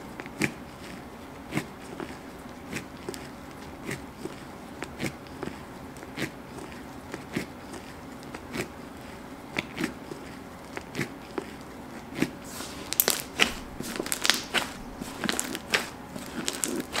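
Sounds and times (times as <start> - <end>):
slime clicking and popping: 12.8 - 17.0.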